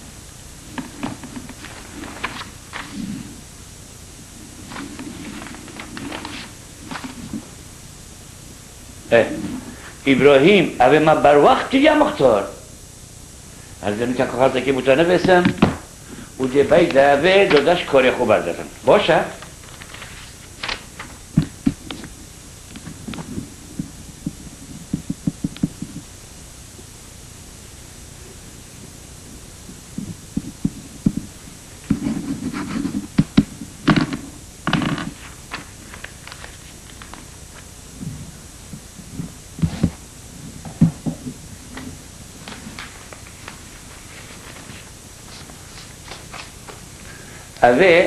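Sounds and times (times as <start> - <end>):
paper handled: 0.6 - 3.4, 4.4 - 7.6, 16.5 - 22.1, 30.0 - 37.7, 39.0 - 46.9.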